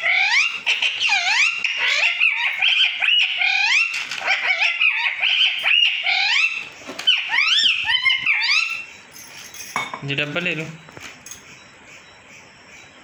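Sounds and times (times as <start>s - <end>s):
parakeet squawking: 0.0s - 9.0s.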